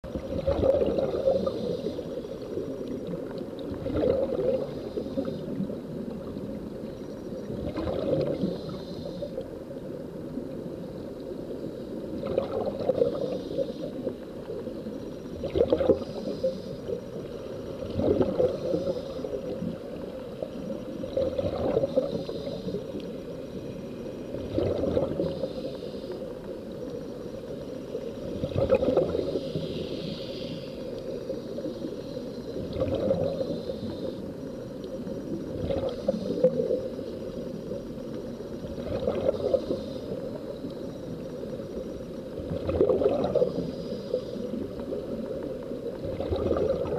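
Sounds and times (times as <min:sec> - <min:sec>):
underwater air bubbling: 0:00.0 - 0:46.9
gurgling bursts: 0:00.2 - 0:01.7, 0:03.8 - 0:04.7, 0:28.4 - 0:29.3.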